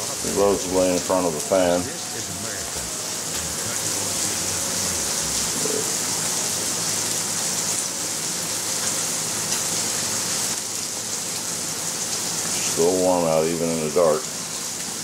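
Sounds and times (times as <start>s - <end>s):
electric fan blowing air: 0.0s - 10.6s.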